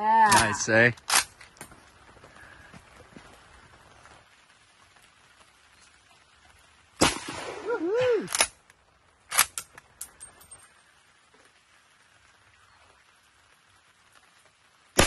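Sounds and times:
rifle shot: 0:07.0 - 0:07.7.

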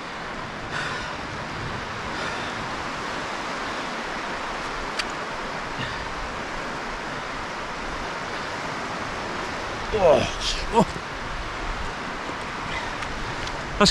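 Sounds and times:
wind noise on microphone: 0:00.0 - 0:05.0.

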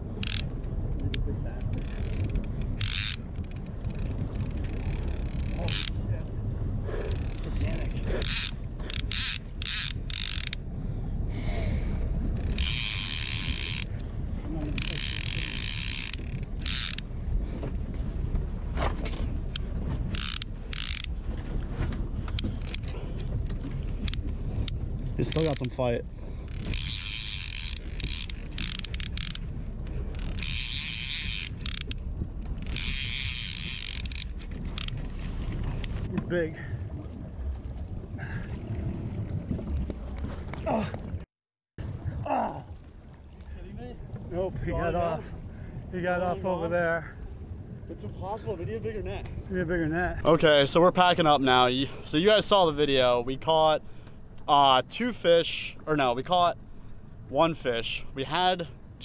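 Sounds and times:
steady low rumble: 0:00.0 - 0:59.0
fishing reel ratcheting: 0:00.2 - 0:00.5, 0:01.1 - 0:06.0, 0:07.0 - 0:10.6, 0:12.4 - 0:14.0, 0:14.7 - 0:17.1, 0:19.5 - 0:21.1, 0:22.3 - 0:22.9, 0:25.2 - 0:25.8, 0:26.4 - 0:32.0, 0:32.6 - 0:35.0.

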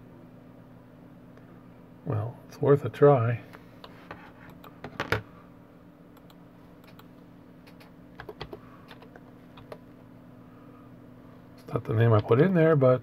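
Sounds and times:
keyboard typing: 0:06.2 - 0:09.8.

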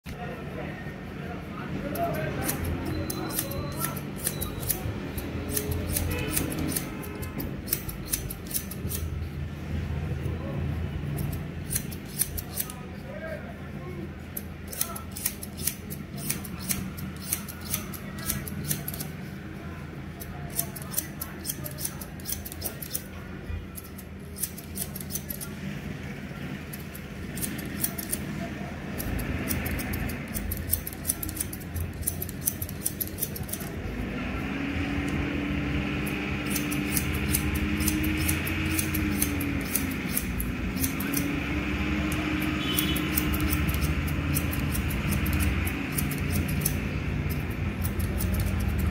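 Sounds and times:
scissors snipping hair: 0:01.8 - 0:09.2, 0:11.1 - 0:12.8, 0:14.3 - 0:19.3, 0:20.1 - 0:23.2, 0:23.8 - 0:25.6, 0:26.7 - 0:33.8, 0:36.0 - 0:48.9.

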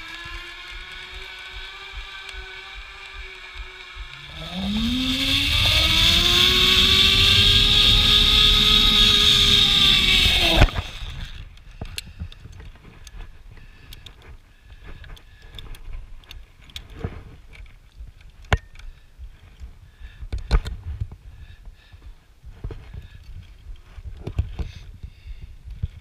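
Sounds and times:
zip-line pulleys whirring on cable: 0:00.0 - 0:11.6.

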